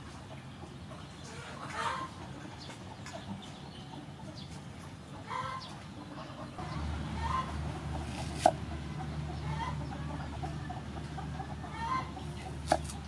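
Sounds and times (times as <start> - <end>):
chickens clucking: 0.0 - 13.0
low steady hum: 3.4 - 13.0.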